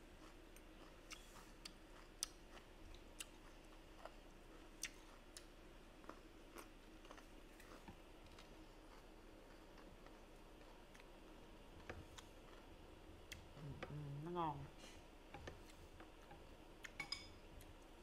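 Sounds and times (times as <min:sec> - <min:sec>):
low steady hum: 0:00.0 - 0:18.0
soft chewing: 0:00.0 - 0:18.0.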